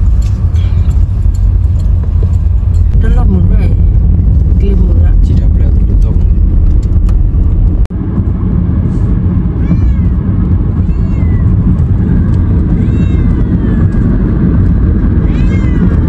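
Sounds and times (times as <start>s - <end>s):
steady low rumble: 0.0s - 16.0s
cat meowing: 0.5s - 1.0s, 9.6s - 11.6s, 12.6s - 14.1s, 15.2s - 16.0s.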